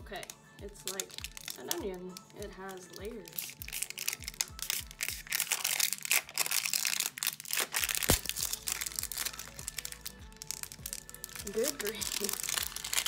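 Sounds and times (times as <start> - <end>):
wrapping crinkling as torn off: 0.2 - 13.0
sharp snap: 7.9 - 8.5.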